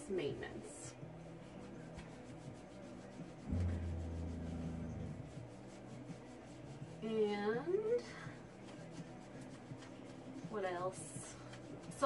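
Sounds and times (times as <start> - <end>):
low steady hum: 3.5 - 5.6.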